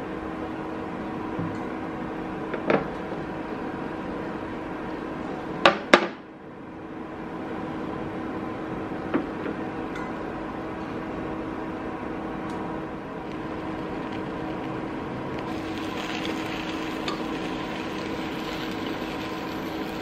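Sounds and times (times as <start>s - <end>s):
cooktop hum: 10.8s - 20.0s.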